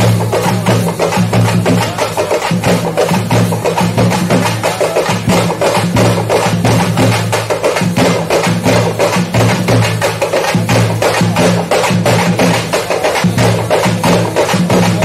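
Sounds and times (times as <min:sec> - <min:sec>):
fast folk drumming: 0:00.0 - 0:15.0.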